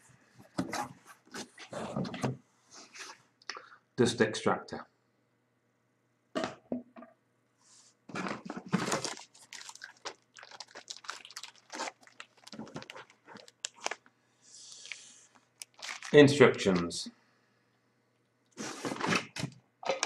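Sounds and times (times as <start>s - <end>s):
plastic sleeve crinkling: 8.1s - 17.0s.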